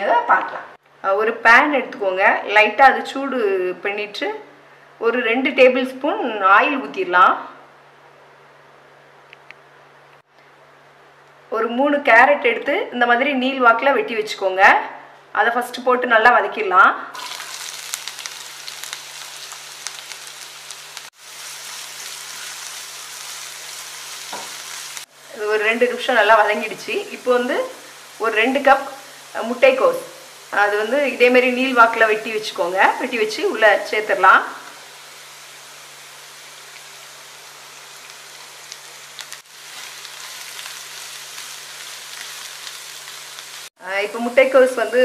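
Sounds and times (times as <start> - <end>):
carrots sizzling in hot oil: 17.2 - 45.0.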